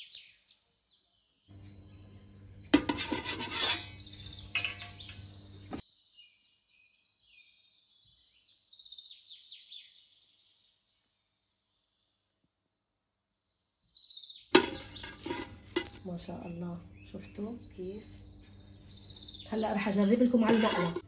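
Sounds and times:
electrical hum: 1.5s - 5.8s, 14.6s - 21.0s
birds chirping: 1.5s - 11.8s, 13.8s - 21.0s
rough scraping noise: 2.7s - 5.8s, 14.6s - 16.1s, 20.3s - 21.0s.

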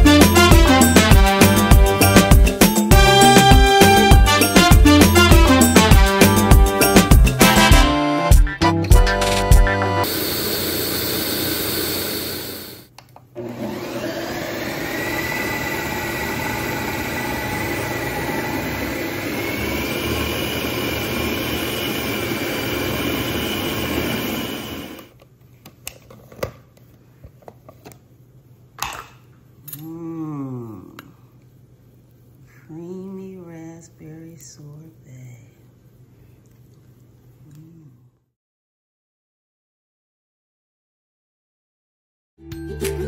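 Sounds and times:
blender whining: 10.0s - 25.1s.

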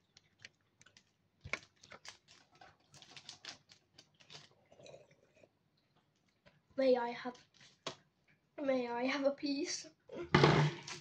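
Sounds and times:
wrapper crinkling: 0.0s - 4.7s, 7.3s - 7.9s.

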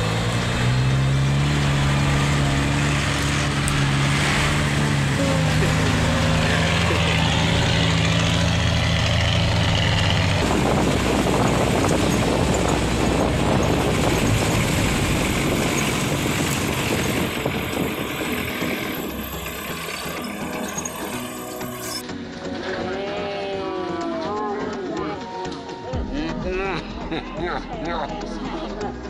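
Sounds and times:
engine idling: 0.0s - 22.0s
vehicle driving on rough trail: 0.0s - 23.1s.

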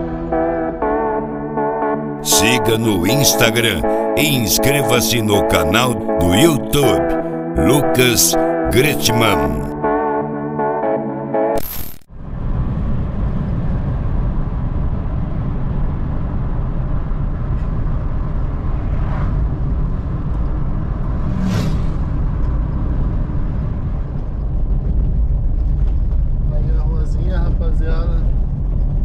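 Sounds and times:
car road and engine noise: 12.2s - 26.5s.

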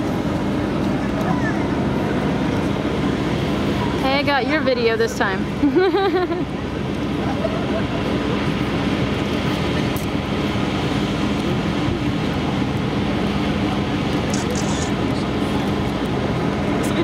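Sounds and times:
machine drone: 6.4s - 17.0s.

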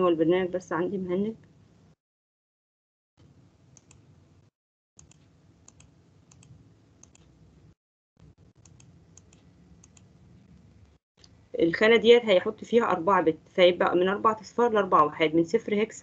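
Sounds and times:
computer mouse clicks: 3.2s - 4.1s, 5.0s - 7.4s, 8.2s - 11.4s.

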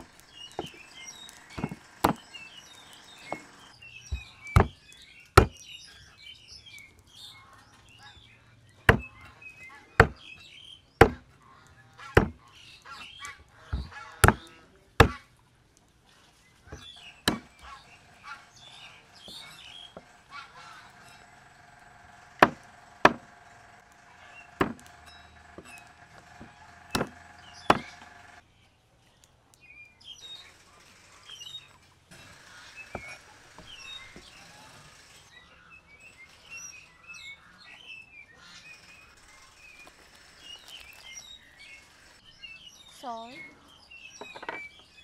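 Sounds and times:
birds chirping: 0.0s - 45.0s
knife chopping on wooden board: 1.6s - 2.2s, 4.1s - 4.8s, 5.4s - 5.6s, 8.9s - 9.1s, 10.0s - 10.2s, 11.0s - 11.2s, 12.2s - 12.4s, 13.7s - 15.2s, 16.7s - 17.6s, 22.4s - 23.2s, 24.6s - 24.9s, 26.4s - 28.0s.

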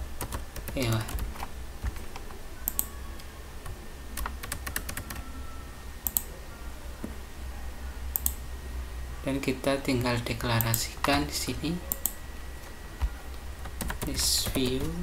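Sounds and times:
steady low hum: 0.0s - 15.0s
mouse clicks: 2.7s - 2.9s, 6.0s - 6.3s, 8.1s - 8.4s, 11.9s - 12.2s
keyboard keystrokes: 3.6s - 5.2s.

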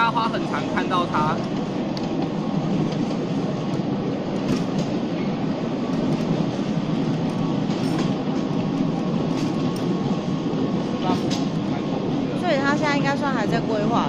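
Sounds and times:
train rumbling along track: 0.0s - 14.0s.

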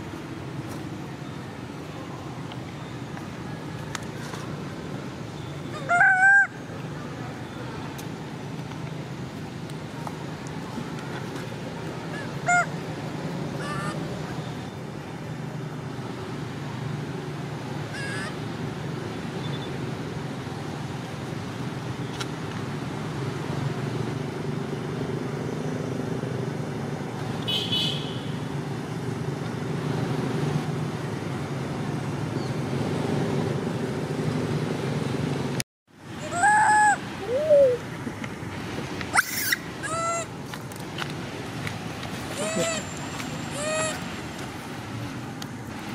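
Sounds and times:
macaque calls: 5.7s - 6.6s, 12.1s - 12.8s, 13.6s - 14.1s, 17.9s - 18.4s, 36.2s - 37.8s, 39.1s - 40.3s, 42.3s - 44.0s.

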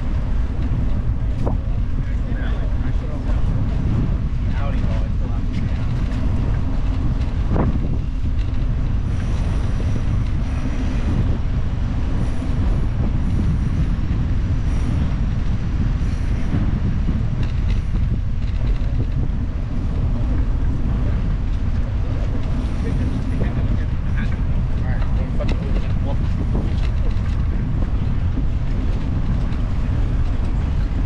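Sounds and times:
bicycle tyres rolling: 0.0s - 31.0s
wind on microphone: 0.0s - 31.0s.

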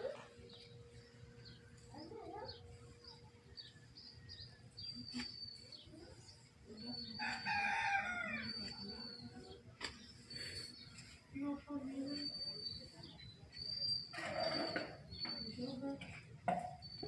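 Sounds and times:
small birds chirping: 0.0s - 17.0s
rooster crowing: 7.2s - 8.6s.

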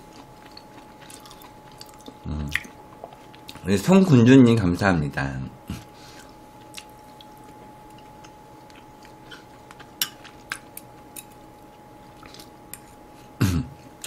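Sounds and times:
quiet chewing: 0.0s - 3.6s, 5.8s - 13.0s
faint high tone hum: 0.0s - 14.0s.

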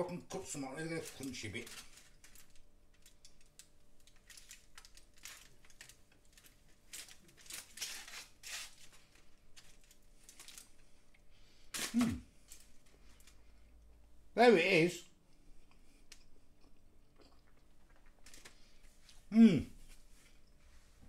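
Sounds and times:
foil crinkling: 0.3s - 10.8s, 18.0s - 18.7s.

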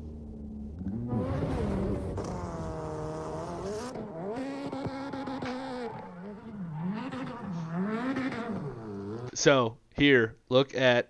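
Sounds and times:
race engine revving: 0.5s - 9.4s.

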